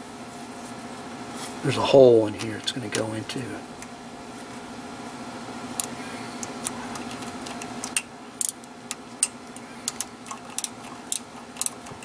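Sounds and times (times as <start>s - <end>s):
metallic clicks of wrench and bolt: 7.4s - 12.0s.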